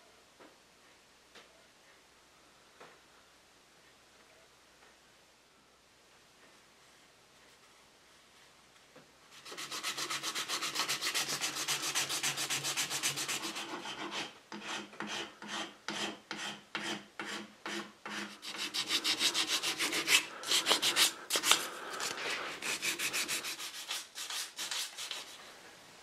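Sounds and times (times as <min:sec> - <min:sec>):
sandpaper rubbing on wood: 0:09.4 - 0:25.4.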